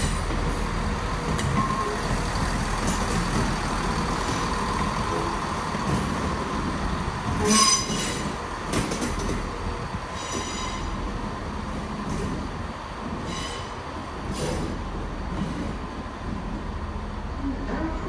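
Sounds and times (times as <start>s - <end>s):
train rumbling past: 0.0s - 18.0s
train wheel squeal: 7.4s - 8.4s, 10.2s - 11.0s, 13.2s - 13.8s.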